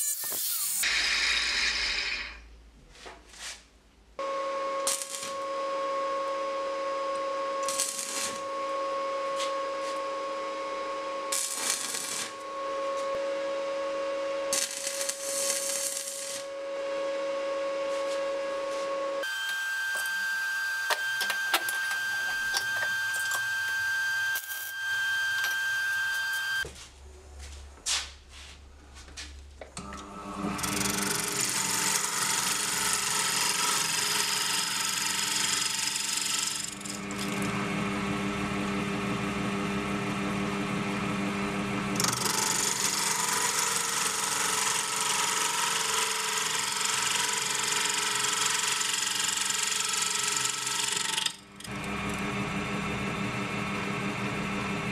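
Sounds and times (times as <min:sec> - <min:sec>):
lathe tool scraping wood: 0:17.9 - 0:26.6, 0:30.5 - 0:37.4, 0:42.0 - 0:51.8
lathe motor hum: 0:29.8 - 0:38.0.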